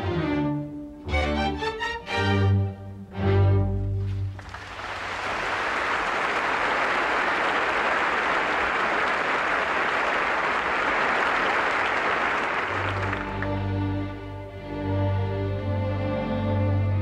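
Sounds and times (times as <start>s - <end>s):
audience applause: 4.3s - 13.7s
orchestra string chord: 12.8s - 17.0s.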